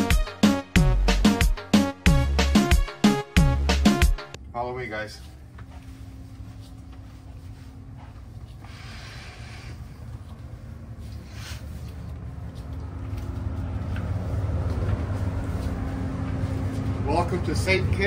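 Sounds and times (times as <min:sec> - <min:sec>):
low engine rumble: 0:04.4 - 0:18.0.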